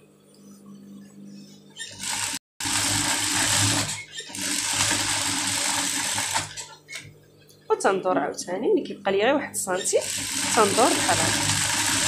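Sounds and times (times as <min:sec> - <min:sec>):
industrial sewing machine stitching: 0:01.9 - 0:07.0, 0:09.8 - 0:12.0.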